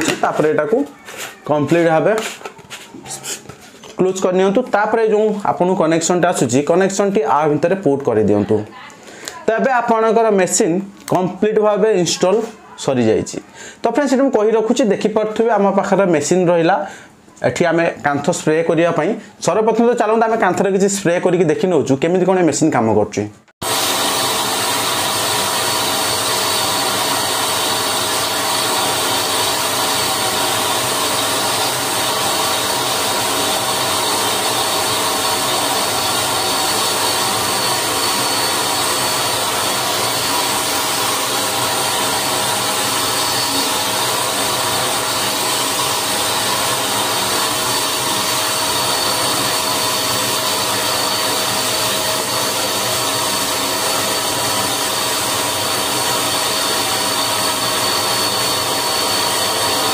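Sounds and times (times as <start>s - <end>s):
electric paint sprayer running: 0.0s - 3.9s, 23.6s - 59.9s.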